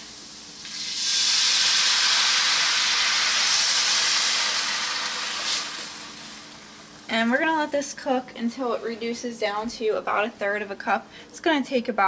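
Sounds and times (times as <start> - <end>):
liquid sizzling in hot pan: 0.0 - 7.5.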